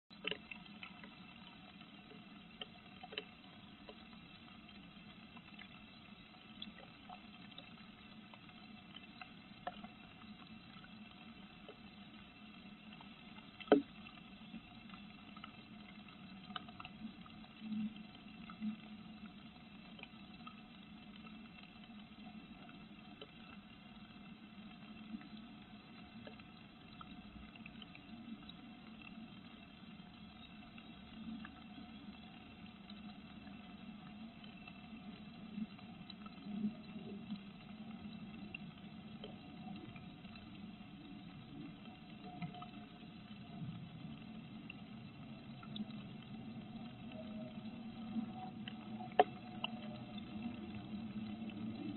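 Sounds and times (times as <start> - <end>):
rain pattering on wooden box: 35.0 - 51.9.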